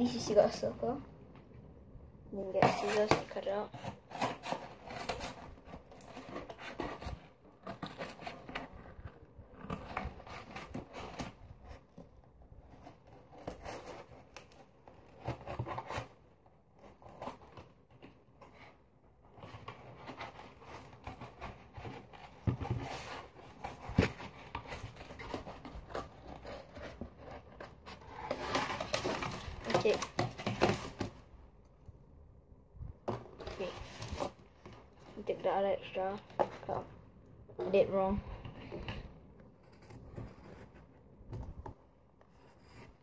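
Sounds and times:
scissors cutting cardboard: 2.4s - 31.2s
cardboard rustling: 2.4s - 31.4s, 33.0s - 43.0s.

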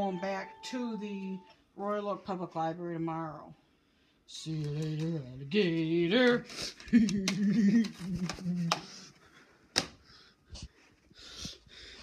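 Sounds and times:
person humming: 7.0s - 8.9s.

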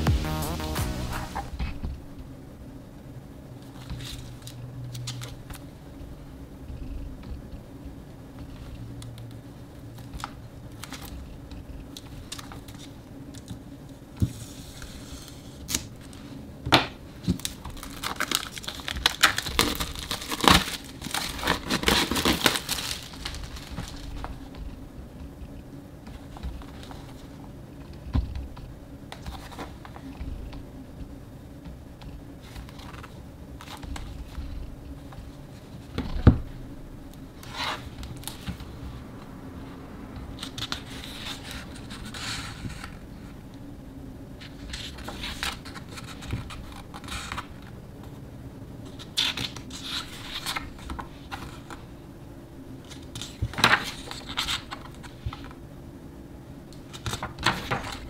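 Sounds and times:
pages turning: 17.2s - 24.6s, 32.4s - 34.6s, 37.4s - 38.8s, 40.3s - 43.0s, 44.4s - 47.7s, 56.9s - 58.0s.

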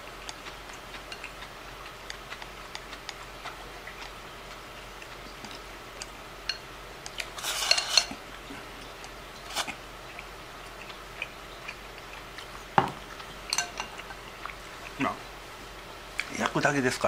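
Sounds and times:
chopsticks scraping ceramic bowl: 6.5s - 8.2s.

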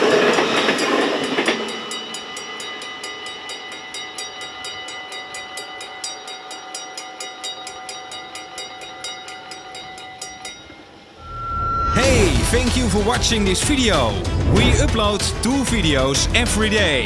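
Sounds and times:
level crossing bells ringing: 0.0s - 14.2s
steady tone: 10.5s - 15.4s.

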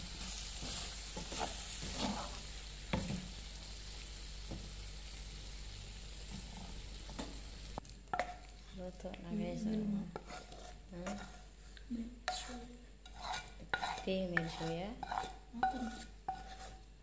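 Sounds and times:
wooden spatula scraping a pan: 0.0s - 3.4s, 9.6s - 16.9s
liver and peppers sizzling in a pan: 0.0s - 8.8s.

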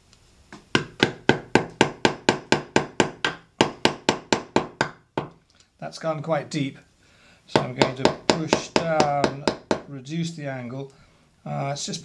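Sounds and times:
hammer tapping chisel handle: 0.5s - 5.4s, 7.6s - 9.9s.

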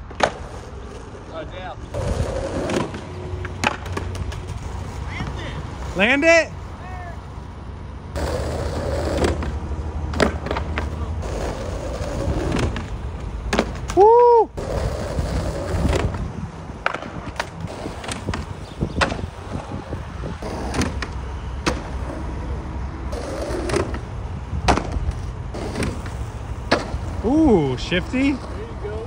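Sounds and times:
skateboard clacks: 0.0s - 1.3s, 1.9s - 4.6s, 8.2s - 14.0s, 16.8s - 19.6s, 23.1s - 27.2s
skateboard rolling on asphalt: 0.0s - 29.0s.

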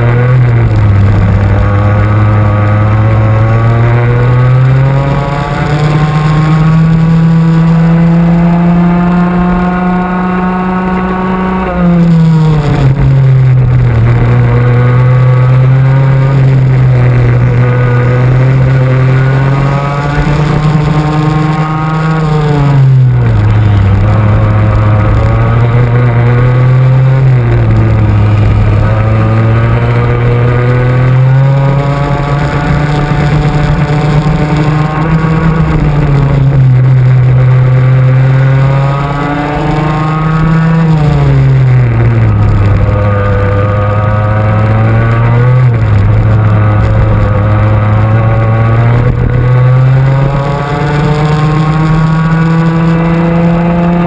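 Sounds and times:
two-stroke kart engine revving: 0.0s - 54.0s.

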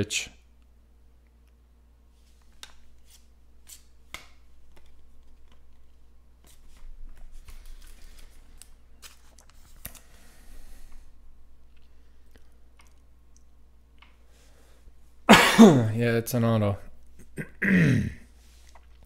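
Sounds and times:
cards rustling: 2.2s - 11.1s.

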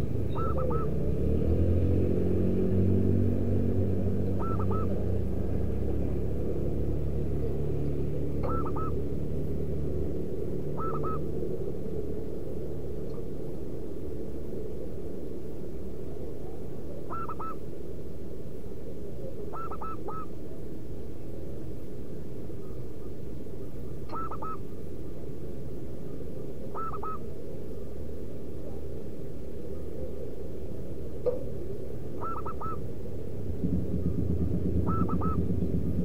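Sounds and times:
dove cooing: 0.0s - 1.8s, 4.2s - 13.6s, 15.9s - 17.7s, 18.9s - 20.6s, 23.9s - 24.7s, 26.4s - 36.0s
low hum: 0.0s - 36.0s
steady low rumble: 0.0s - 36.0s.

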